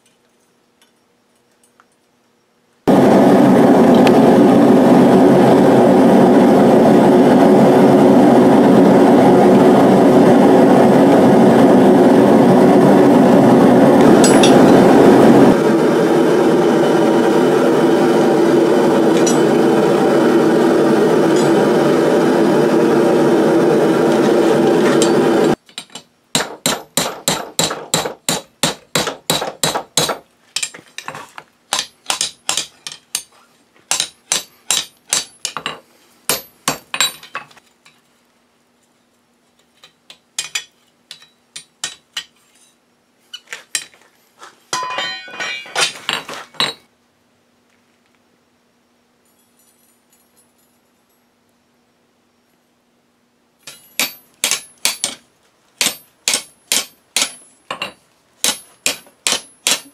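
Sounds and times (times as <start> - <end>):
gas forge burner roaring: 2.9 - 25.6
hammer striking steel on anvil: 14.1 - 14.9, 19.1 - 19.6, 21.3 - 21.6, 24.8 - 30.8, 31.7 - 33.3, 33.9 - 37.5, 40.4 - 42.3, 44.7 - 46.8, 53.6 - 55.2, 55.8 - 59.9.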